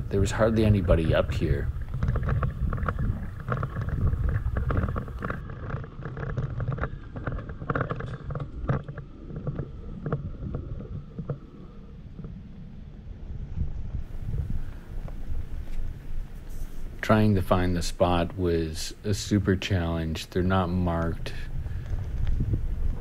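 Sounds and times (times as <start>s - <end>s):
pickup truck engine and tyre rumble: 0.0s - 8.2s
gravel crunching under tyres: 0.0s - 11.4s, 14.0s - 23.0s.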